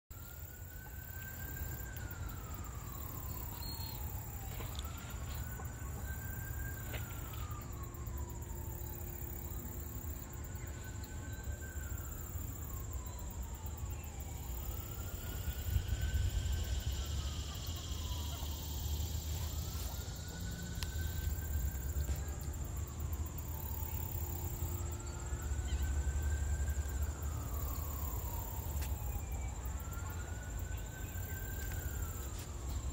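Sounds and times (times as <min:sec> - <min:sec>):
emergency siren wailing: 0:00.1 - 0:32.9.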